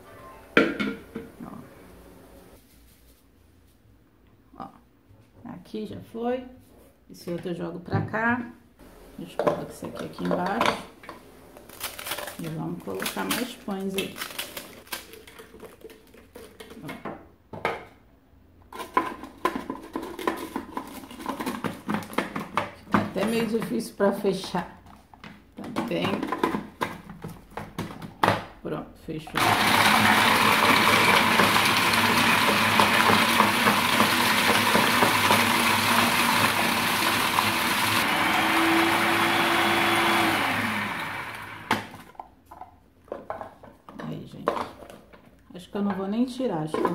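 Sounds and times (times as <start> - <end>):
food processor grinding bread: 29.4 - 42.1.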